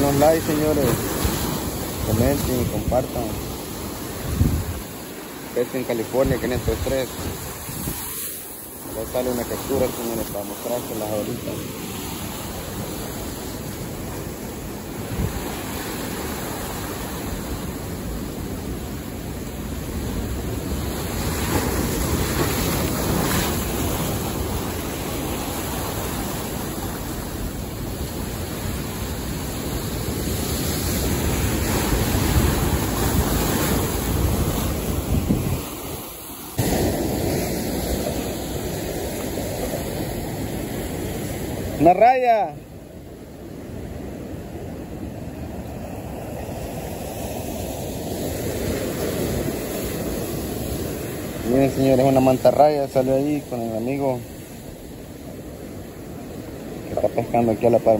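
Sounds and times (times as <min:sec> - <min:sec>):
wind buffeting microphone: 0:00.0 - 0:05.1, 0:06.2 - 0:09.0, 0:11.4 - 0:41.8
surf breaking against rocks: 0:00.0 - 0:42.6.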